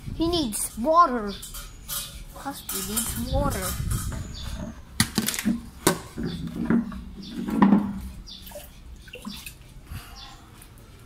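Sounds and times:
water splashing in carried pot: 0:07.6 - 0:09.8.

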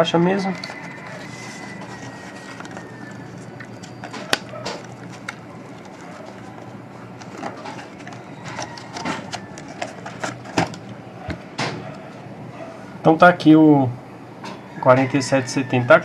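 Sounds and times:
cardboard and plastic packaging rustling: 0:00.4 - 0:11.5.

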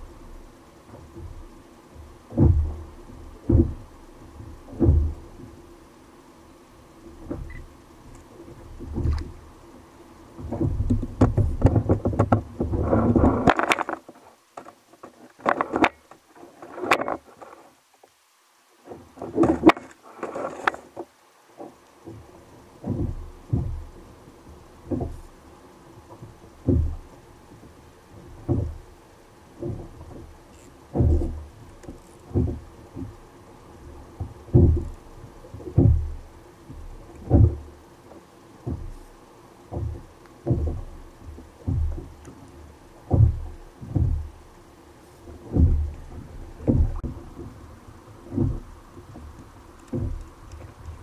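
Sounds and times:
water knocking against kayak hull: 0:00.9 - 0:05.5, 0:08.4 - 0:09.4, 0:10.3 - 0:16.1, 0:18.9 - 0:24.1, 0:24.8 - 0:25.3, 0:26.0 - 0:27.2, 0:28.3 - 0:28.9, 0:29.6 - 0:33.3, 0:34.1 - 0:39.1, 0:39.7 - 0:44.6, 0:45.2 - 0:51.0.

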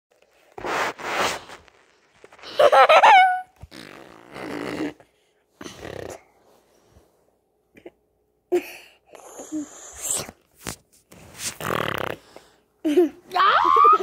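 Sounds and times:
child squealing: 0:13.4 - 0:14.0.

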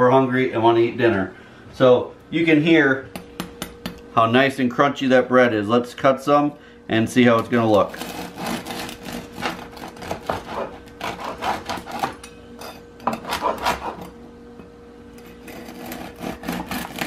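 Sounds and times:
bread knife sawing crust: 0:07.8 - 0:12.2, 0:13.1 - 0:14.1, 0:15.2 - 0:17.0.

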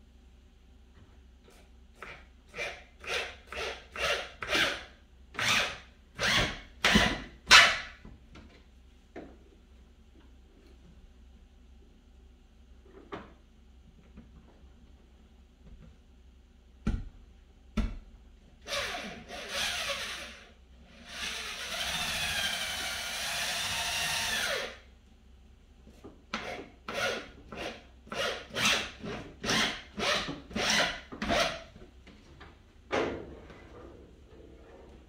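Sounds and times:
cordless drill driving screws: 0:18.7 - 0:24.8.

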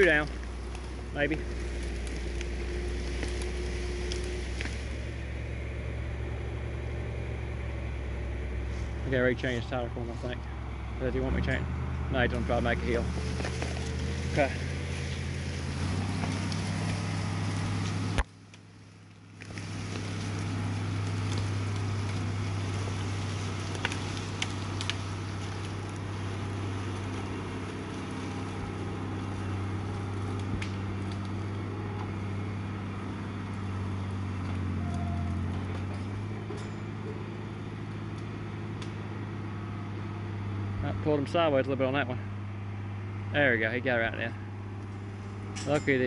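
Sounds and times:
tractor diesel engine under load: 0:00.0 - 0:46.0.

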